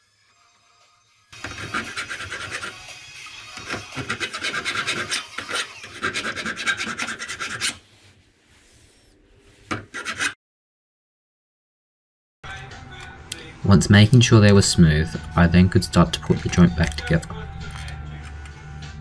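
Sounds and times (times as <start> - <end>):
hand file rasping on steel: 1.4 - 7.9, 9.7 - 10.4.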